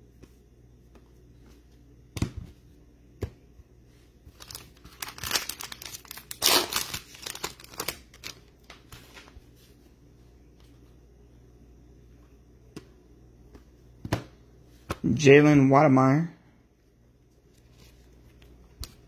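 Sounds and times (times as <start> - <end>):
wrapper crinkling and tearing: 4.4 - 9.3.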